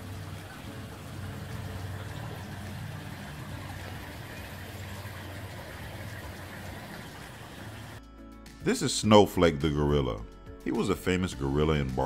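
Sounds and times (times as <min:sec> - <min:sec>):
low hum and hiss: 0:00.0 - 0:08.0.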